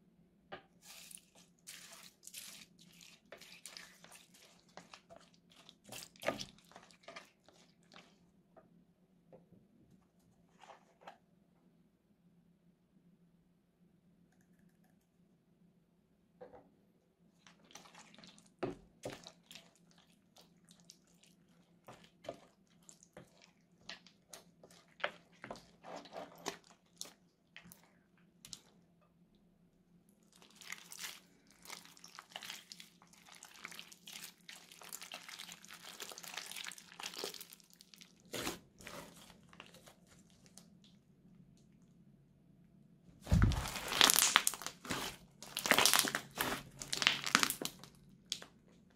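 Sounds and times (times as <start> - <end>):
slime crackling when stirred: 0.8 - 8.4, 17.3 - 28.8, 30.2 - 41.0, 43.2 - 48.6
loud crinkling: 43.3 - 47.8.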